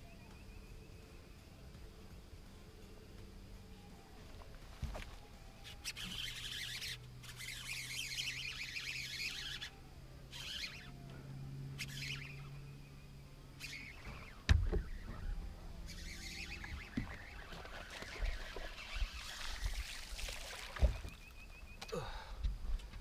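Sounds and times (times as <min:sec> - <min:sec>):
birds chirping: 0:05.2 - 0:23.0.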